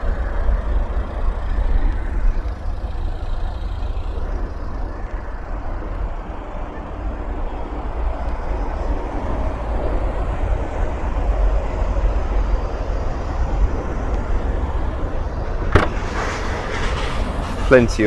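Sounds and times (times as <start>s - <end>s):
outdoor rumble and hiss: 0.0s - 18.0s
car tailgate latch click: 15.7s - 16.0s.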